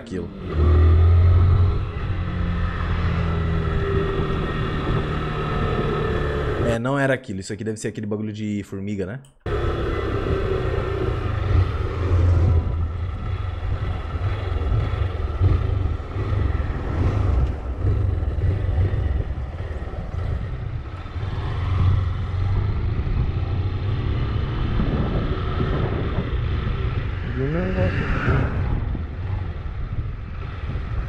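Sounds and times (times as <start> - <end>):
motorcycle engine running: 9.5 - 27.1
wind rushing on microphone: 10.0 - 31.0.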